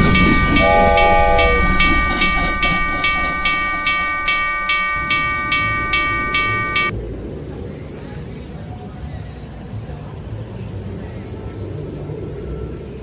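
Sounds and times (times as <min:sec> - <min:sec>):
railway bell ringing: 0:00.0 - 0:06.9
train whistle toot: 0:00.0 - 0:06.9.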